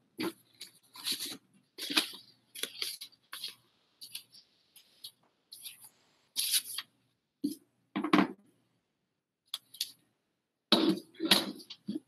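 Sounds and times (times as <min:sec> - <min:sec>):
paper rustling: 0:00.2 - 0:06.9.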